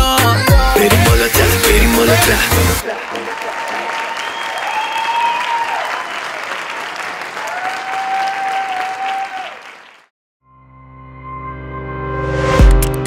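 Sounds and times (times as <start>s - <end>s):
crowd applauding: 2.8s - 10.1s.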